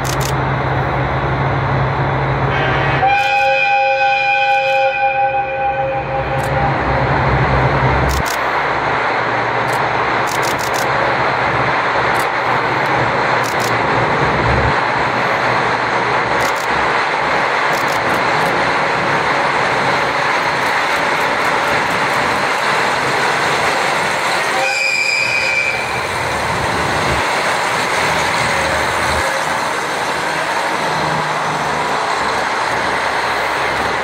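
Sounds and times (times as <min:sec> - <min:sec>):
diesel railcar engines running: 0:00.0 - 0:34.0
train wheels rumbling on rails: 0:00.0 - 0:34.0
high squeal: 0:24.1 - 0:26.2.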